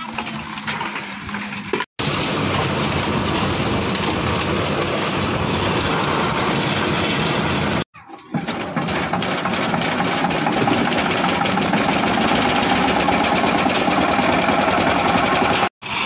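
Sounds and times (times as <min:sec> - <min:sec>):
construction site clatter: 0:00.0 - 0:15.7
diesel engine chugging: 0:02.0 - 0:15.7.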